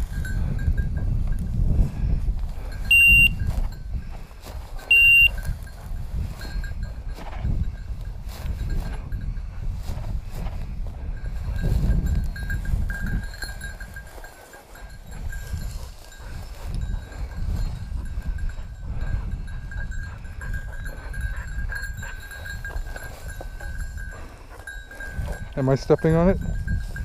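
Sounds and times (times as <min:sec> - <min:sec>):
wind buffeting microphone: 0:00.0 - 0:27.0
faint high ringing tone: 0:02.9 - 0:03.6, 0:04.9 - 0:05.6.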